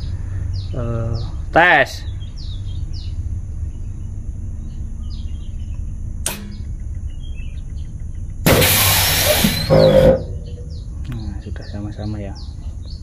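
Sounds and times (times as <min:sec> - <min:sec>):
steady low rumble: 0:00.0 - 0:11.8
birds chirping: 0:00.0 - 0:13.0
air brake valve click: 0:08.5 - 0:09.9.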